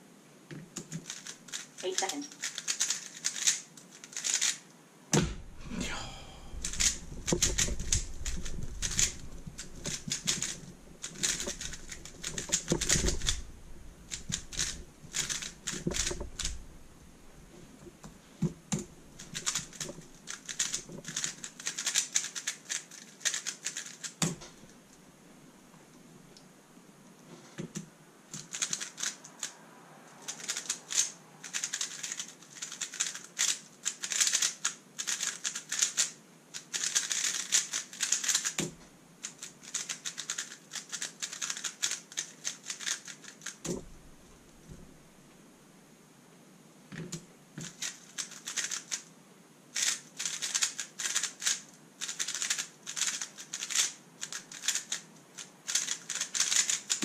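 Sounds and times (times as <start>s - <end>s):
puzzle cube clicking: 0.8s - 4.6s, 6.5s - 13.5s, 14.1s - 16.6s, 18.8s - 24.3s, 28.4s - 29.5s, 30.3s - 38.7s, 39.3s - 43.8s, 47.6s - 49.1s, 49.8s - 57.0s.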